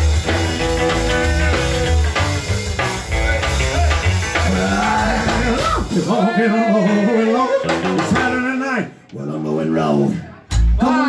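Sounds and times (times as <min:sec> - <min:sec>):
double bass: 0:00.0 - 0:05.9
electric guitar: 0:00.0 - 0:06.1
drums: 0:00.0 - 0:08.9, 0:10.1 - 0:11.0.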